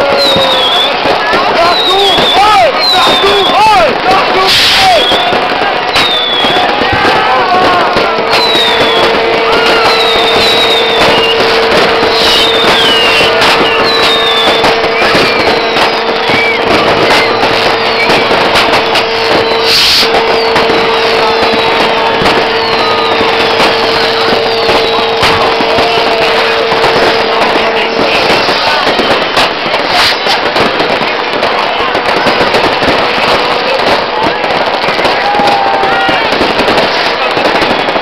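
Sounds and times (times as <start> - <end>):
fireworks banging and crackling: 0.0 - 38.0
whistling rockets: 0.0 - 38.0
steady held tone: 8.2 - 29.3.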